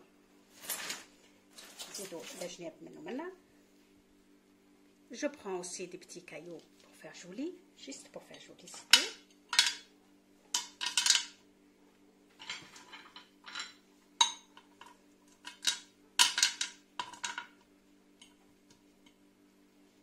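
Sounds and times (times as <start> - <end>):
pebbles clacking against glass: 10.6 - 11.4.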